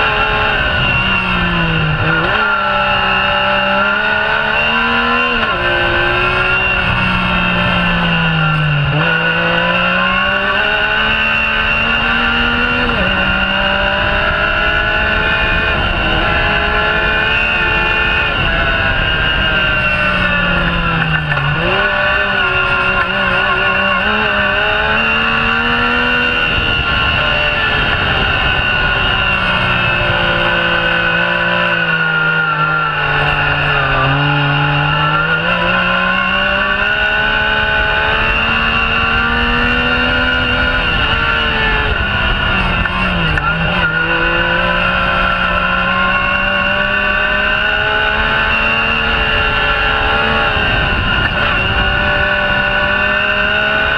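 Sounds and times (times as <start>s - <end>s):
off-road vehicle engine revving: 0.0s - 53.9s.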